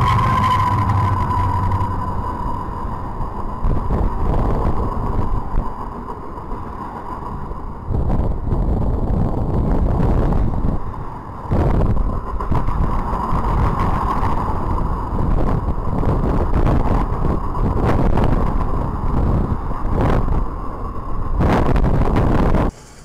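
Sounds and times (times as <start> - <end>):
high ringing tone: 0.0 - 5.6
rail clicks: 0.0 - 23.0
train wheels rumbling on rail: 0.0 - 23.0
wind noise on microphone: 0.0 - 23.0.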